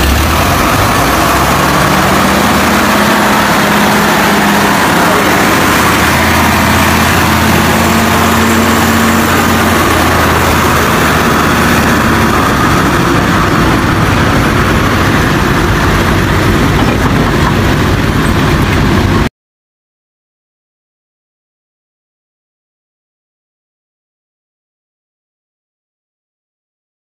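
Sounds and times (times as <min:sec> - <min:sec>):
loud even rushing noise: 0:00.0 - 0:19.3
truck engine hum: 0:00.0 - 0:19.3.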